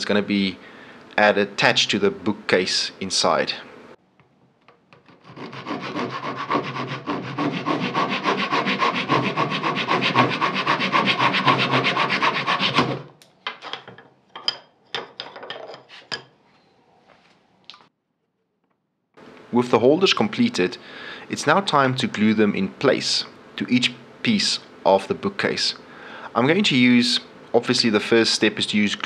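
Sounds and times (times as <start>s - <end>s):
hand saw cutting wood: 5.1s - 13.1s.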